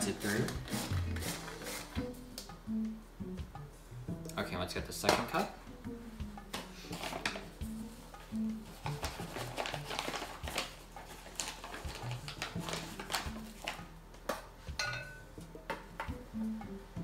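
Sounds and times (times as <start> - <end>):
measuring cup scraping flour: 0.0 - 2.0
paper flour bag rustling: 0.0 - 2.0, 6.6 - 13.8.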